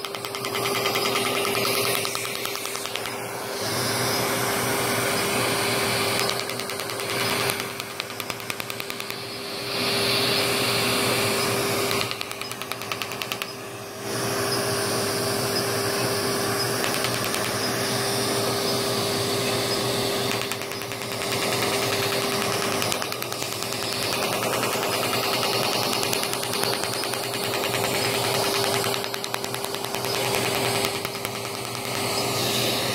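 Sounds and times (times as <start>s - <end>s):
rapid laser pulse ticking: 0.0s - 3.2s, 6.1s - 9.3s, 11.9s - 13.6s, 16.7s - 17.7s, 20.2s - 32.2s
machine hum: 0.0s - 32.9s.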